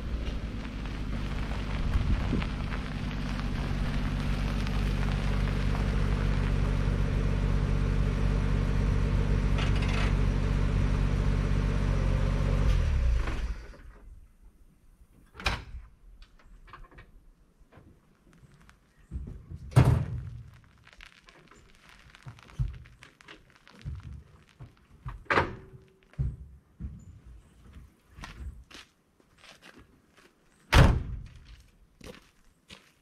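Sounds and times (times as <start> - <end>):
pickup truck engine running: 0.0 - 13.0.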